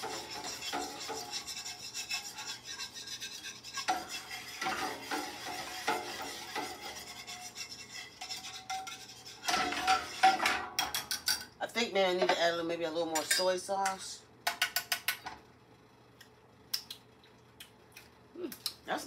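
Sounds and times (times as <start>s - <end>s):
metal utensil scraping skillet: 0.0s - 11.4s.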